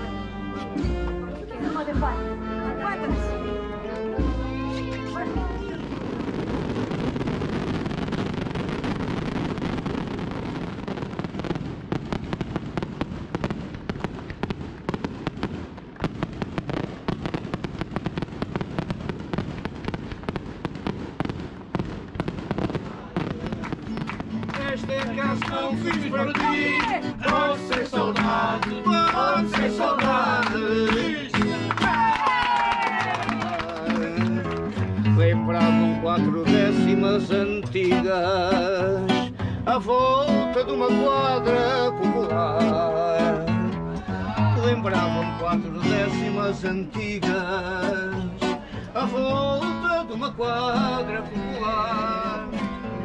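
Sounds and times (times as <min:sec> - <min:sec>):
acoustic guitar strumming: 0:00.0 - 0:32.1, 0:32.9 - 0:53.0
people clapping along: 0:22.6 - 0:37.6, 0:40.4 - 0:46.6
man singing: 0:24.4 - 0:32.0, 0:33.1 - 0:53.0.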